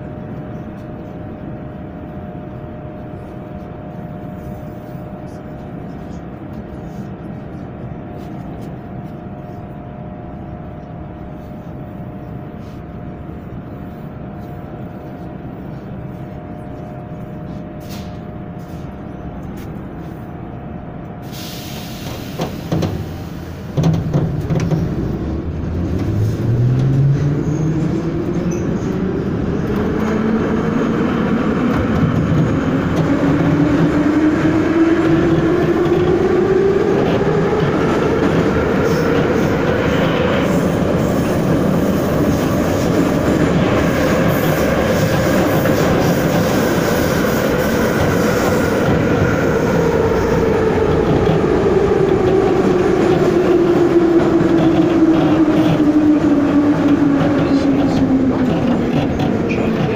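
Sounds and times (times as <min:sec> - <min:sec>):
metro train rumbling: 0:00.0 - 0:59.9
air hiss: 0:21.2 - 0:23.8.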